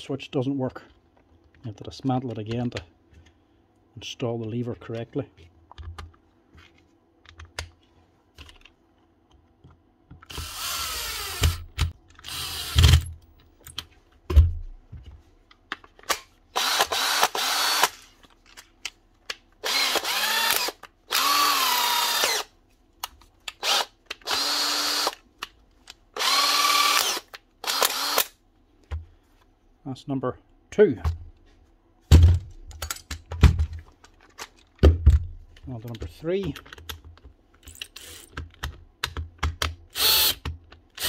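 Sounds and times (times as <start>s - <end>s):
drill motor spinning up: 10.3s - 11.6s, 12.3s - 13.0s, 16.6s - 18.0s, 19.6s - 22.5s, 23.6s - 25.2s, 26.2s - 28.3s, 40.0s - 40.4s.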